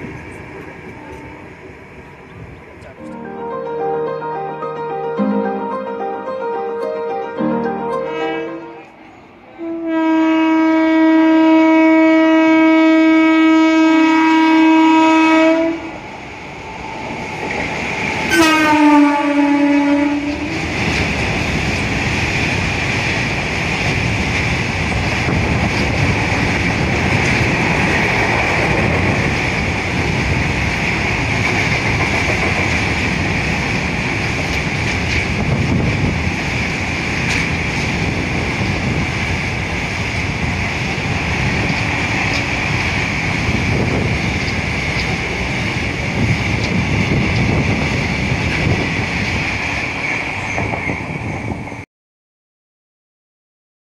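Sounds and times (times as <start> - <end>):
locomotive horn blast: 5.0 - 15.9, 18.3 - 20.6.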